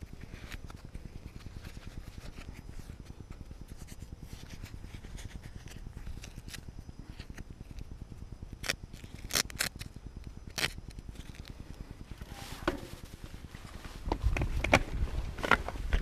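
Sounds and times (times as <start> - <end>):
glove straps rasping: 0.1 - 7.9, 8.5 - 11.6
bike rolling on dirt trail: 11.1 - 16.0.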